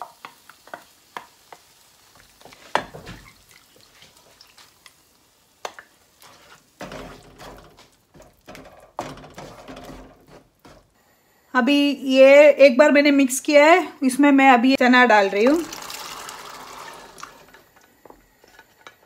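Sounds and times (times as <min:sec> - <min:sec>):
spoon stirring paste in pan: 0:00.0 - 0:11.0
wooden spoon scraping jar: 0:09.3 - 0:10.9.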